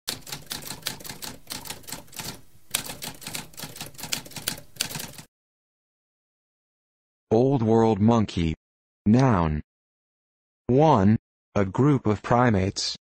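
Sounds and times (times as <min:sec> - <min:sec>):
typewriter typing: 0:00.1 - 0:05.3.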